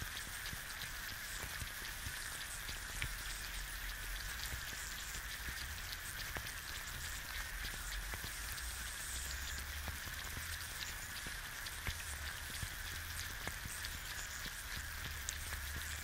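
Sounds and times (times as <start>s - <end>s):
egg frying crackle: 0.0s - 16.0s.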